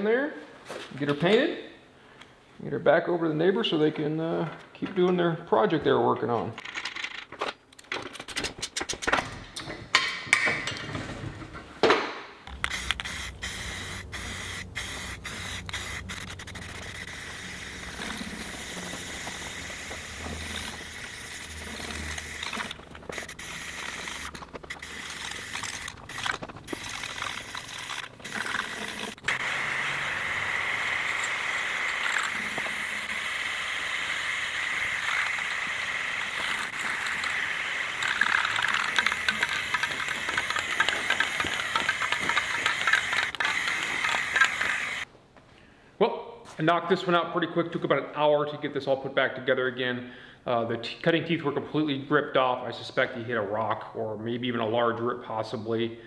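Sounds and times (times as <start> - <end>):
spray paint can hissing: 12.5 - 45.1.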